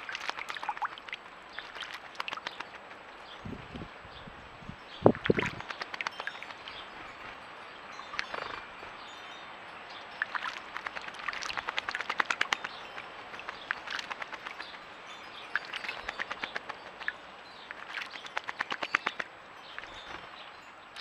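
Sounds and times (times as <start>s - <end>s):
bird splashing water with wings: 0.0s - 3.4s, 5.1s - 7.4s, 10.2s - 14.8s, 15.5s - 20.4s.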